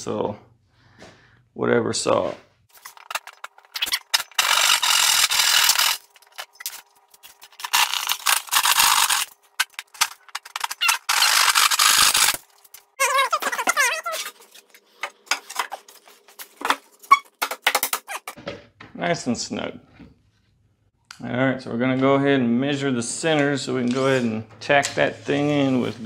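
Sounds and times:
hand saw cutting plywood: 3.8s - 6.0s.

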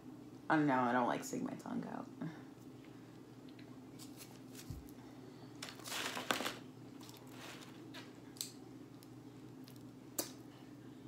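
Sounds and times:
faint steady hum: 0.0s - 11.0s
aluminium foil crinkling: 5.6s - 8.1s.

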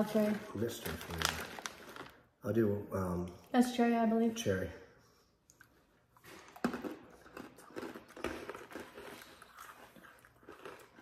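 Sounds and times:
candy crunching while chewed: 0.0s - 2.3s, 5.6s - 11.0s.

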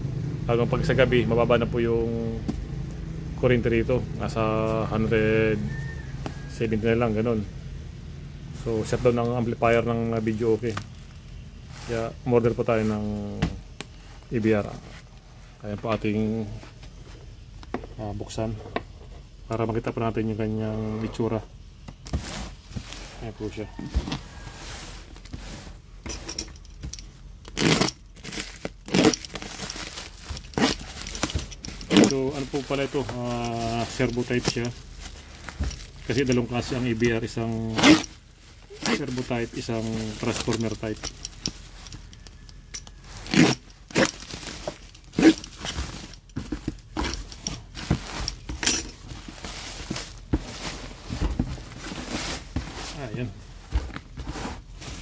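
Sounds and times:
plastic wrapping crinkling: 8.8s - 13.0s, 26.6s - 55.0s
plastic ripping: 27.4s - 50.9s.

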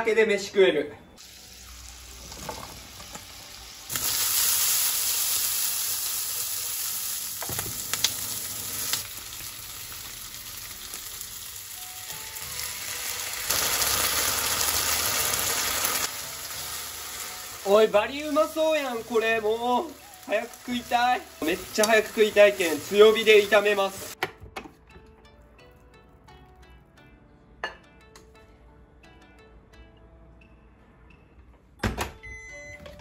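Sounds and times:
food sizzling in frying pan: 1.2s - 24.2s.

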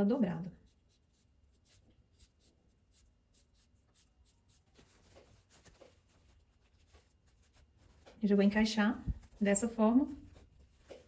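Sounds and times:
fabric rustling and clicking: 4.6s - 11.0s.

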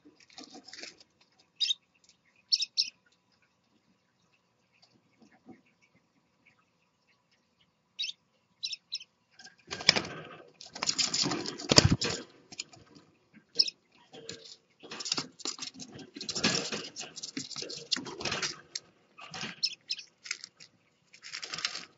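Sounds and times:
wing flapping and scuffling: 0.0s - 1.5s, 9.6s - 13.1s, 14.1s - 21.9s
parakeets chirping: 1.5s - 3.1s, 8.0s - 9.2s, 13.6s - 20.4s.

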